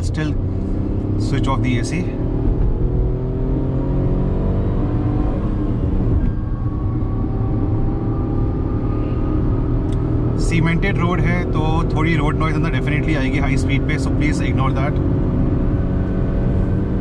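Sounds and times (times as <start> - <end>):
car engine accelerating: 0.0 - 17.0.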